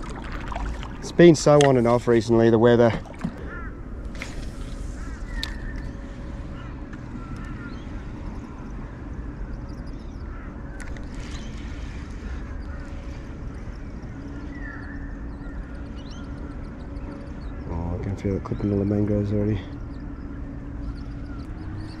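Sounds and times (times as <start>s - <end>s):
birds calling: 0.0s - 22.0s
wind and water rumble: 0.0s - 22.0s.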